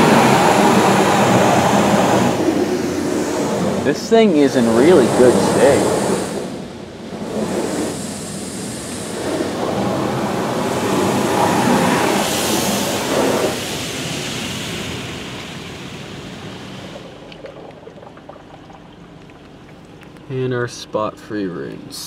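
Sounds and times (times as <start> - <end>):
car wash water spray: 0.0 - 20.2.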